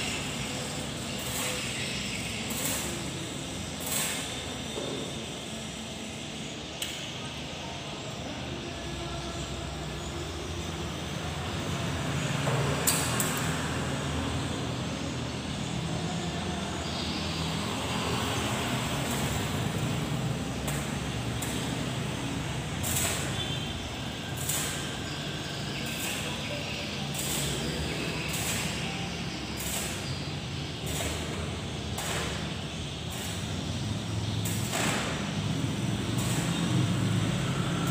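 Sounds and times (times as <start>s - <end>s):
welding arc crackling and hissing: 0.0s - 37.9s.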